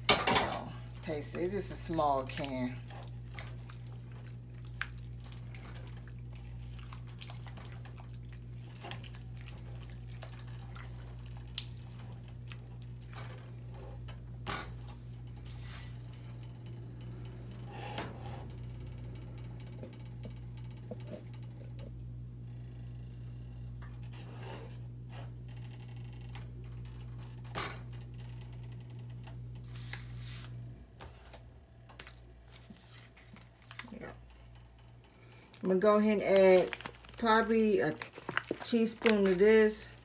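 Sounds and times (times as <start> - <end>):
steady low hum: 0.0 - 40.0
soup bubbling and popping: 2.9 - 13.1.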